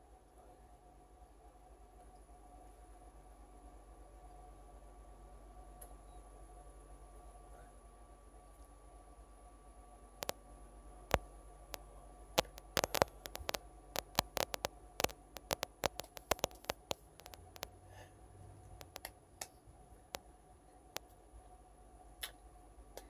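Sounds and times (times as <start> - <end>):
sharp clicks and taps: 12.4 - 17.7, 18.8 - 20.2.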